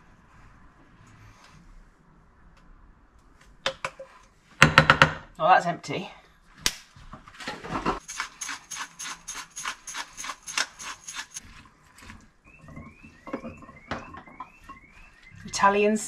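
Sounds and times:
spice jar shaking: 0:08.0 - 0:11.4.

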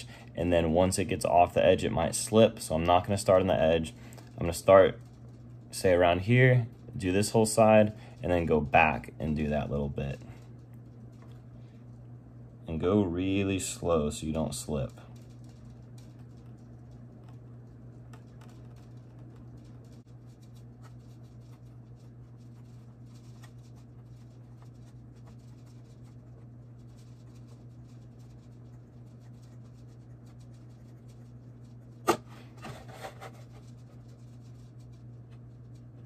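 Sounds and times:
low hum: 0:00.0 - 0:36.0.

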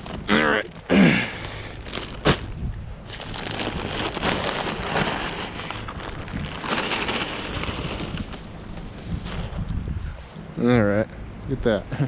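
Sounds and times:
compost pouring onto soil: 0:03.1 - 0:08.4.

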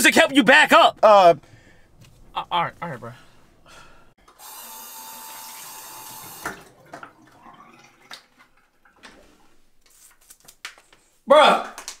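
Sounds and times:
sink faucet running: 0:04.4 - 0:09.0
faucet shutting off with clunk: 0:05.3 - 0:09.2.

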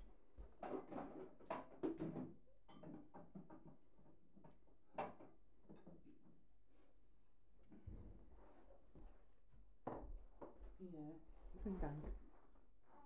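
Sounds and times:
cupboard door and dishes clattering: 0:00.4 - 0:06.3.

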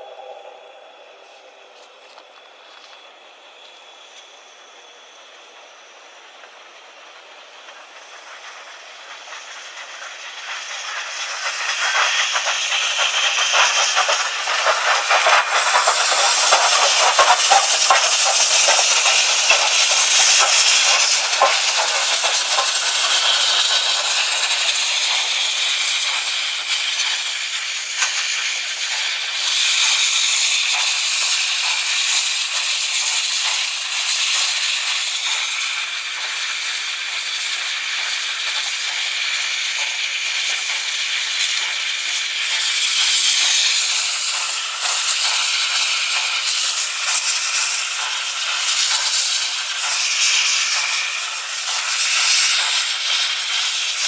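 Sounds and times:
steam locomotives hissing: 0:00.0 - 0:54.0.

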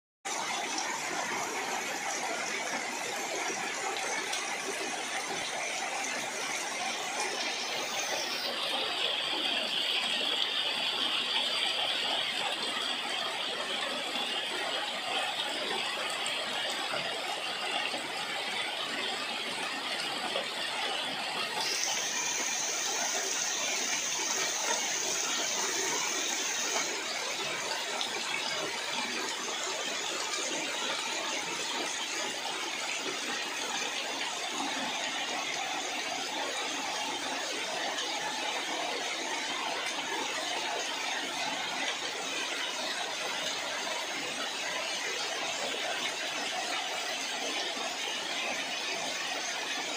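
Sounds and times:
high steady whine: 0:21.4 - 0:29.3
heavy rain on leaves: 0:21.5 - 0:43.0.

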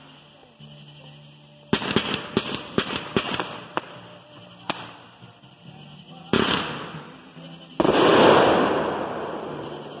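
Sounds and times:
fireworks bangs: 0:01.7 - 0:04.0, 0:06.3 - 0:07.1, 0:07.8 - 0:10.0.

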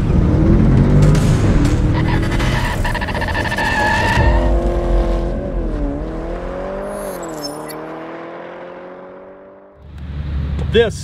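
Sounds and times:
car engine revving: 0:00.0 - 0:10.8
high glitchy effect clicks: 0:01.1 - 0:04.8, 0:06.9 - 0:07.8
car tyres squealing: 0:01.8 - 0:05.8, 0:06.8 - 0:07.8.

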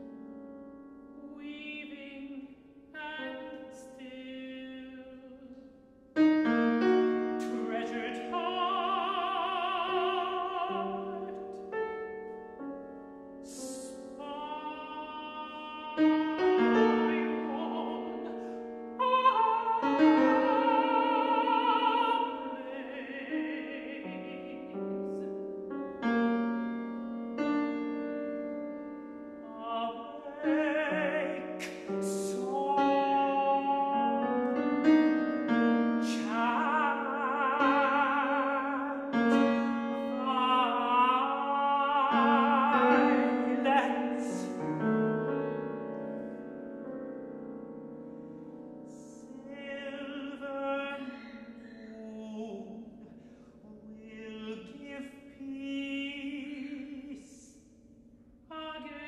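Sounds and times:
grand piano: 0:00.0 - 0:59.0
countertenor singing with vibrato: 0:06.2 - 0:12.0, 0:13.4 - 0:25.4, 0:29.4 - 0:45.6.

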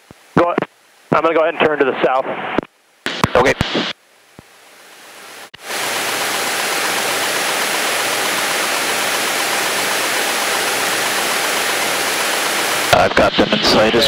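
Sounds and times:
faint high whine: 0:00.1 - 0:14.0
airplane cabin engine drone: 0:05.6 - 0:14.0.

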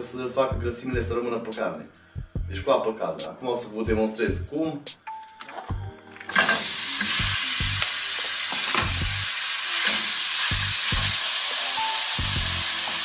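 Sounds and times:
meat sizzling in a frying pan: 0:06.3 - 0:13.0.

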